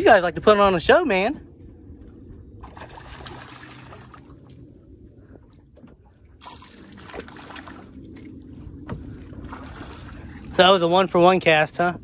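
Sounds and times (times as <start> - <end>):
fish thrashing water splashing: 2.6 - 4.5, 6.3 - 8.5.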